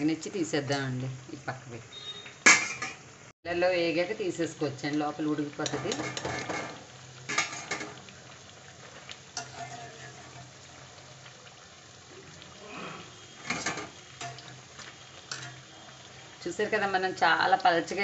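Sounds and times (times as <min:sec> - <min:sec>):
oil sizzling in deep-frying: 0:00.0 - 0:18.0
metal tongs clinking on pan: 0:00.6 - 0:01.0, 0:02.4 - 0:03.0, 0:05.6 - 0:08.0, 0:09.4 - 0:10.6, 0:13.4 - 0:14.6, 0:15.3 - 0:15.7.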